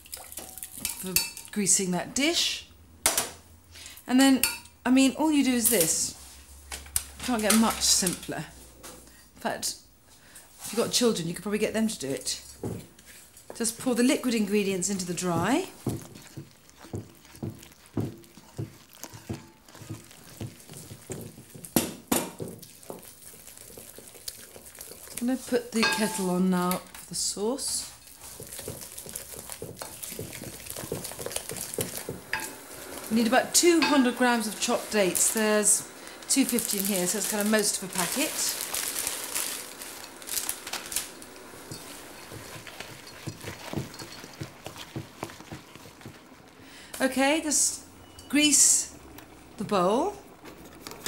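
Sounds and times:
wooden spoon stirring batter: 10.6 - 47.5
plastic packet crinkling: 15.0 - 21.7, 28.0 - 32.2, 34.2 - 44.2
spoon knocking against bowl: 25.8 - 26.2.

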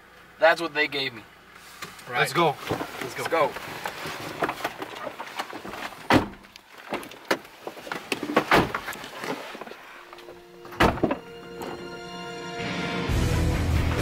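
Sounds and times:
clothing rustling: 2.5 - 10.8
car door handling: 2.6 - 11.8.

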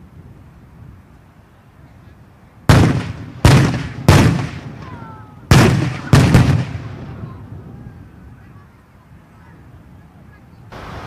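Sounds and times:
explosive demolition blasts: 2.7 - 7.4.

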